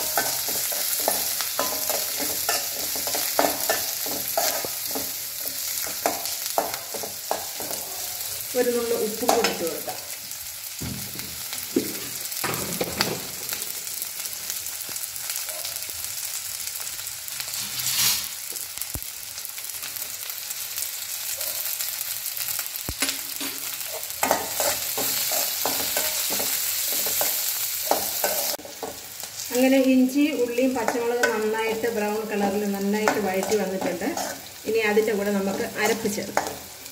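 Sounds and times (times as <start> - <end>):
metal spoon scraping a pan: 0.0 - 8.5, 17.4 - 18.4, 23.0 - 29.1, 30.5 - 36.9
vegetables sizzling in oil: 0.0 - 36.9.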